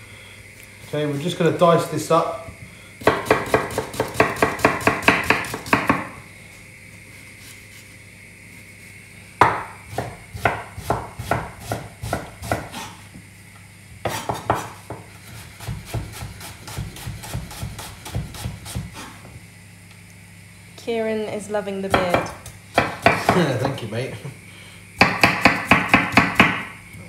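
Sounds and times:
knife chopping on wooden board: 3.0s - 6.2s, 9.4s - 13.0s, 14.0s - 19.3s, 21.9s - 23.8s, 25.0s - 26.7s.

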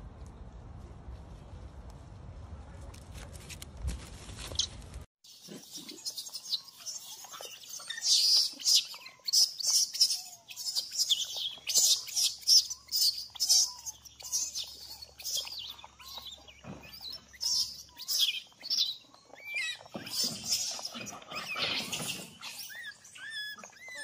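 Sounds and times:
faint low animal calls: 5.3s - 24.0s
high-pitched animal chirps: 5.3s - 24.0s.

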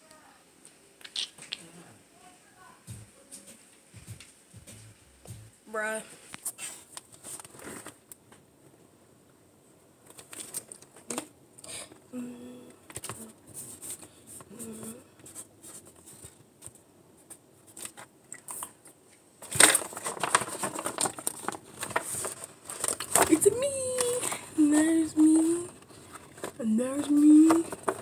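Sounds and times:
person humming: 12.1s - 13.4s, 14.5s - 15.1s
paper handling: 19.4s - 28.0s.

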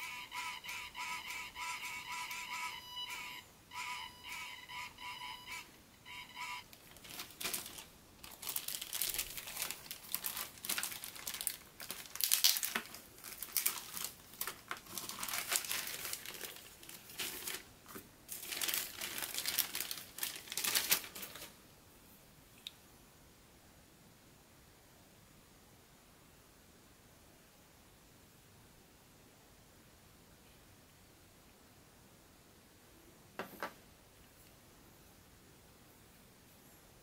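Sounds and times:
plastic packaging crinkling: 6.7s - 21.6s.

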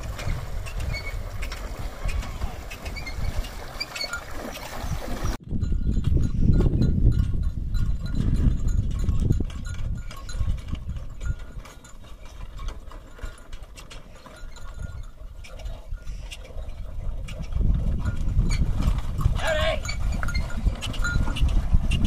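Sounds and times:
neck bells jingling: 5.6s - 17.1s, 17.9s - 21.6s.

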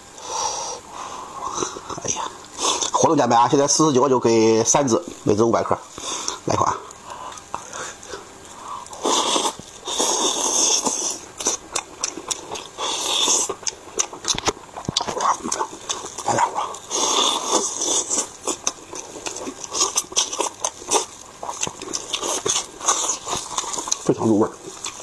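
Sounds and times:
chewing: 6.0s - 25.0s.

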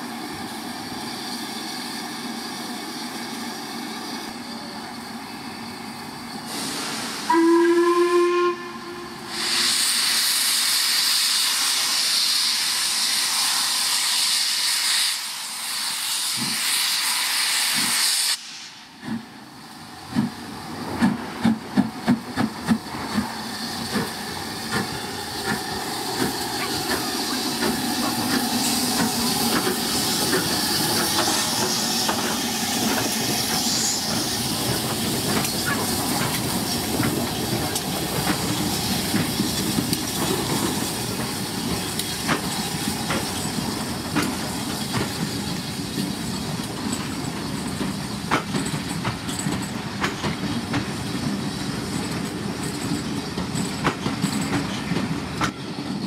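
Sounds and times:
rush of escaping steam: 0.0s - 56.0s
steam hissing: 0.0s - 56.0s
steam whistle blast: 6.6s - 10.1s.

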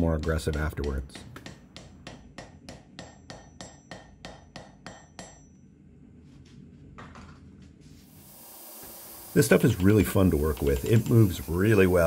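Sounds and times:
hammer tapping on metal: 0.0s - 5.6s.

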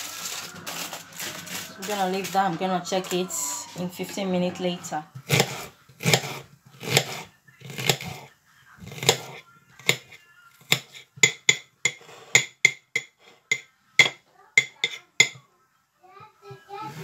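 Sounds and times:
knife chopping onion on a plate: 5.2s - 8.2s, 8.8s - 15.4s.

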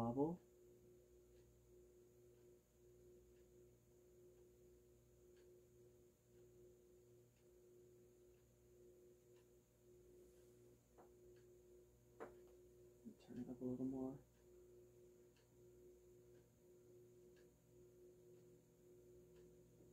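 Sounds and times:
ceiling fan motor hum: 0.0s - 19.9s
light ticking: 5.3s - 5.6s, 9.3s - 19.9s.

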